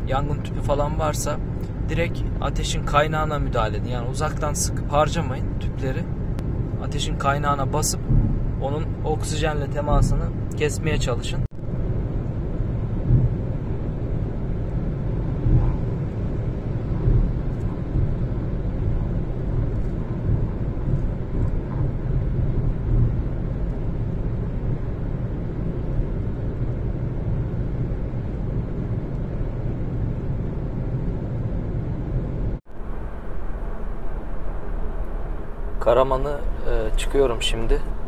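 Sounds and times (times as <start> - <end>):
car engine and road noise: 0.0 - 38.0
car bumps: 8.0 - 8.6.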